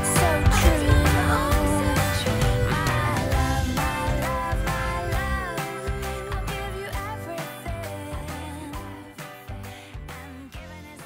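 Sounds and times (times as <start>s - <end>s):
pop music with steady beat: 0.0s - 11.0s.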